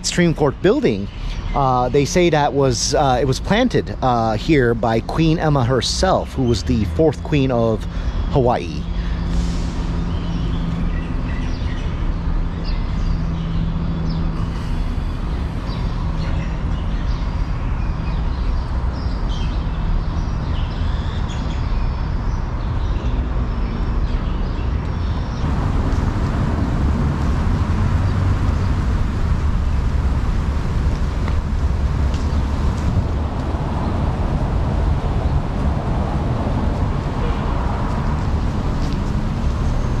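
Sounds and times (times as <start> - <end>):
low engine hum: 0.0 - 20.9, 24.6 - 40.0
small birds chirping: 0.0 - 31.5
traffic noise: 0.0 - 40.0
heavy rushing noise: 5.2 - 11.3, 25.4 - 40.0.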